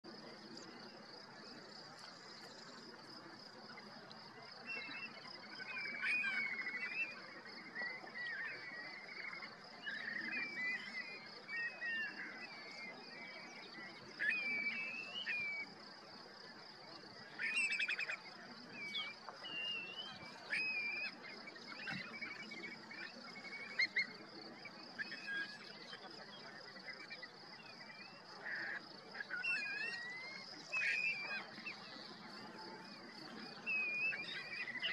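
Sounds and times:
shorebirds whistled calls: 0:17.4 - 0:18.2, 0:18.8 - 0:24.2, 0:28.4 - 0:31.9.

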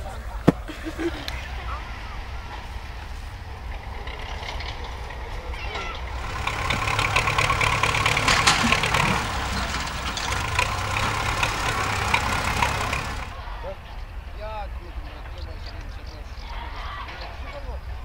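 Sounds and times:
vehicle engine humming: 0:00.0 - 0:13.4
clattering noise: 0:06.2 - 0:13.4.

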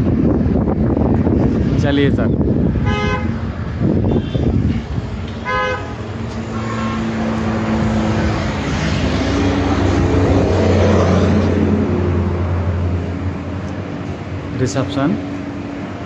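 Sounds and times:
road traffic noise: 0:00.0 - 0:16.0
vehicle horn tooting: 0:02.8 - 0:03.4, 0:04.0 - 0:04.8, 0:05.4 - 0:07.2.

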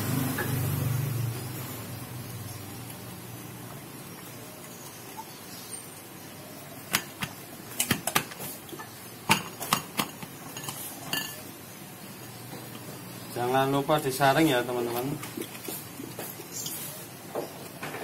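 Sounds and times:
clinks on glass bottle: 0:09.3 - 0:11.5.

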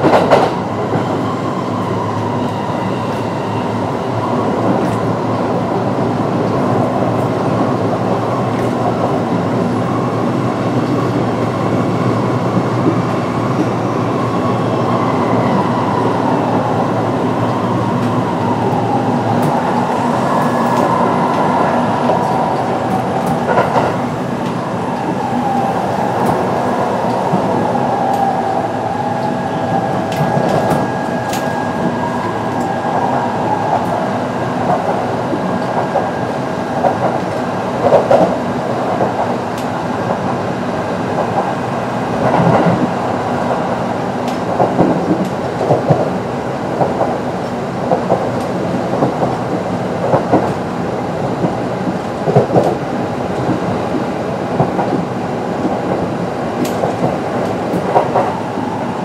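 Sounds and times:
electric train rumbling: 0:00.0 - 0:59.0.

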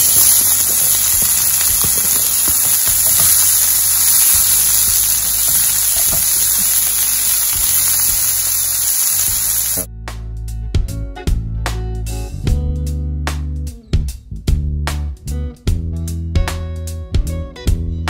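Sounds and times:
vegetables sizzling in a skillet: 0:00.0 - 0:09.9.

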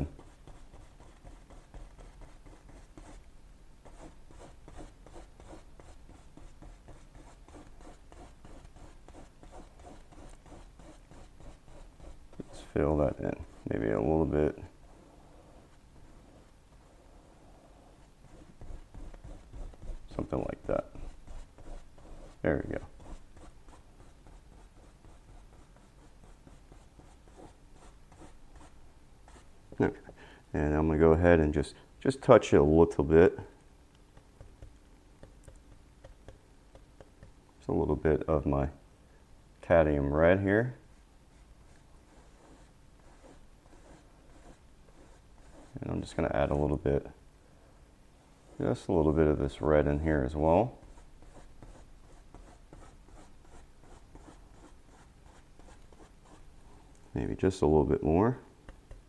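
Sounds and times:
paintbrush scrubbing on canvas: 0:00.0 - 0:03.2, 0:03.9 - 0:17.0, 0:17.8 - 0:29.5, 0:41.3 - 0:46.7, 0:48.4 - 0:56.8.

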